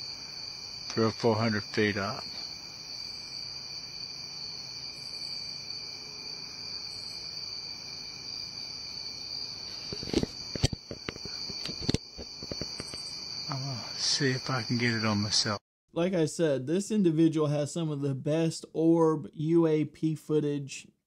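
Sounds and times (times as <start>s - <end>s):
crickets chirping: 0.0s - 15.6s
sharp knocks and clicks: 9.9s - 13.0s.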